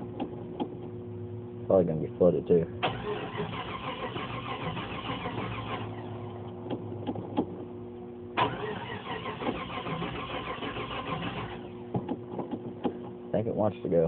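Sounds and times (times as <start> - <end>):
engine starter cranking: 2.8 - 6.2, 8.4 - 11.8.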